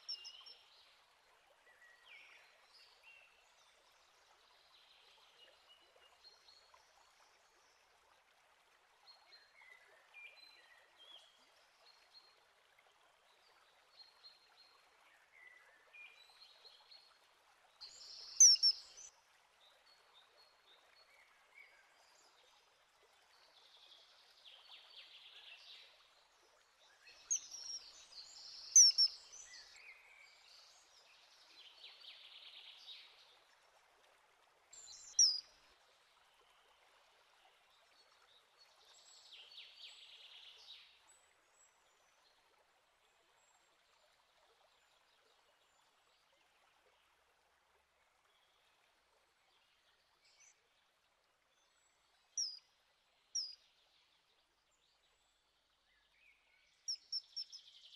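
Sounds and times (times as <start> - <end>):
faint bird chirps: 17.8 - 19.1, 27.3 - 29.3, 34.8 - 35.4, 52.4 - 52.6, 56.9 - 57.6.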